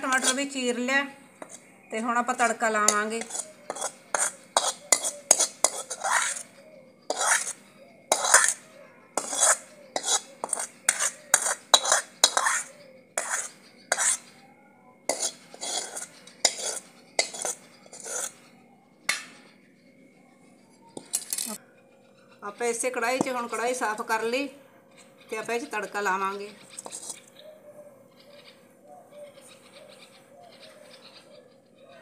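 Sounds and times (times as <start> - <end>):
ladle scraping iron pot: 0.0 - 8.6, 9.2 - 14.3, 15.1 - 18.4, 26.6 - 27.3.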